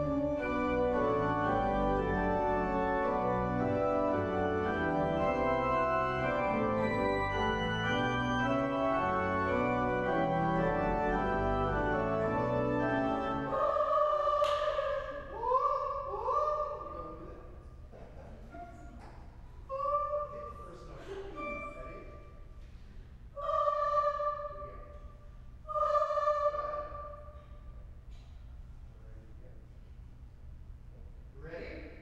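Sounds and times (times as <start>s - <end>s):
pipe organ chords: 0.0s - 14.1s
choir singing: 0.0s - 16.7s, 23.4s - 24.7s, 25.7s - 27.3s.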